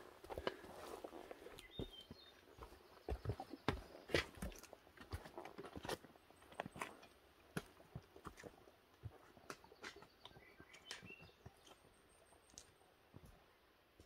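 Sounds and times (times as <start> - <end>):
boots tapping on rock: 1.6 - 11.8.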